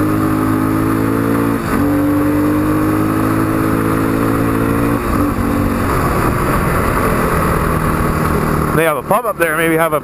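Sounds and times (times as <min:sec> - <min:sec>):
wind rush: 0:03.4 - 0:08.9.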